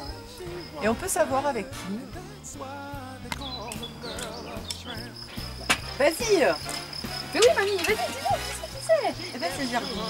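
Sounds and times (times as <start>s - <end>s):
background music: 0.0s - 10.0s
sharp clicks: 3.3s - 4.8s.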